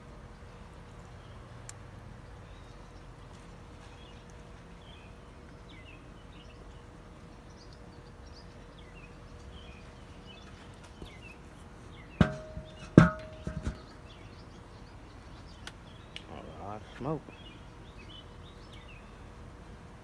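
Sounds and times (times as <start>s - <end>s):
bird chirps: 3.8s - 19.4s
metal lid clanking down: 12.2s - 13.9s.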